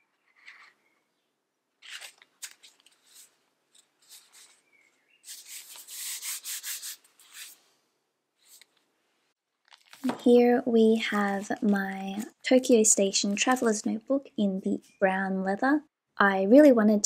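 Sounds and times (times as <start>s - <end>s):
book pages rustling and scuffing: 1.8s - 6.4s, 9.7s - 10.2s.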